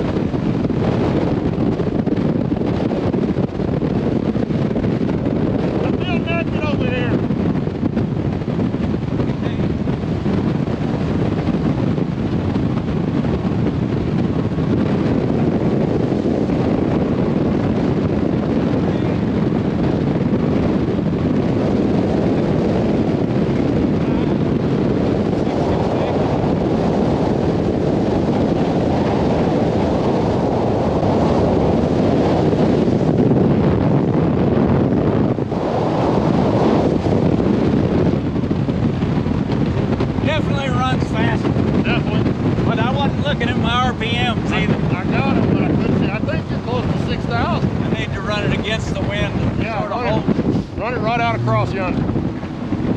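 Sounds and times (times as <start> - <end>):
outboard motor running: 0.0 - 52.9
wind noise on microphone: 0.0 - 52.9.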